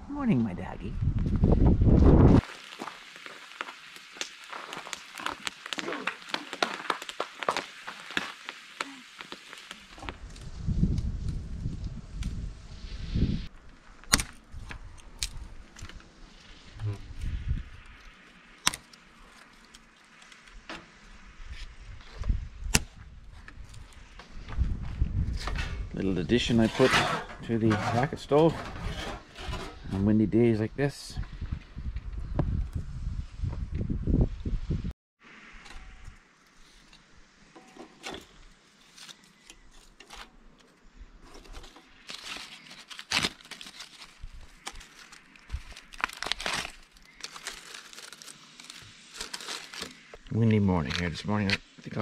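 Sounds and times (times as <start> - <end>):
wind buffeting microphone: 0.6 - 2.4, 10.1 - 13.5, 21.5 - 26.6, 31.2 - 34.9
bark being torn: 4.0 - 10.1, 14.0 - 15.4, 17.9 - 20.5, 41.3 - 50.1.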